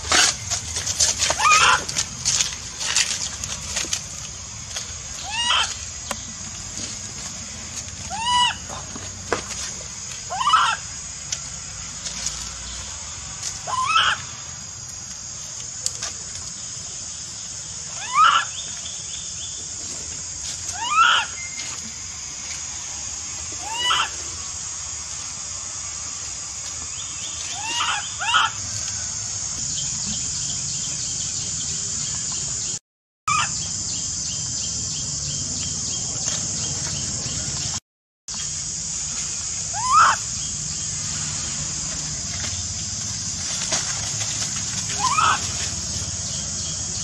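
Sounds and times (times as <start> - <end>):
steady high hiss: 0.0 - 32.8, 33.6 - 47.0
baby monkey crying: 1.4 - 1.9, 5.2 - 5.7, 8.1 - 8.6, 10.3 - 10.8, 13.7 - 14.2, 18.0 - 18.5, 20.7 - 21.3, 23.6 - 24.1, 27.5 - 28.6, 33.3 - 33.5, 39.7 - 40.3, 45.0 - 45.5.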